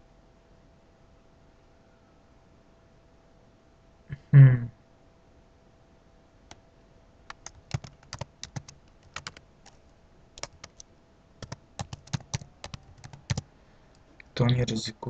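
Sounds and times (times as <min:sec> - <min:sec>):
computer keyboard typing: 0:07.3 - 0:09.8, 0:10.4 - 0:10.8, 0:11.4 - 0:13.5.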